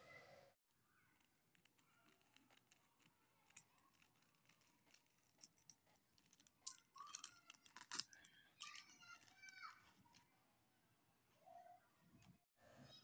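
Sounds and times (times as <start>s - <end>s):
plastic packet crinkling: 6.0s - 10.2s.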